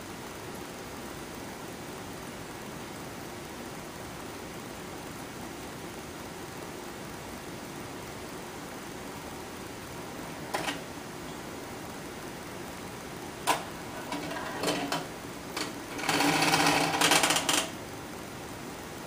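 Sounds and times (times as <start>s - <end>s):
rapid mechanical rattling: 10.4s - 11.0s, 13.4s - 17.9s.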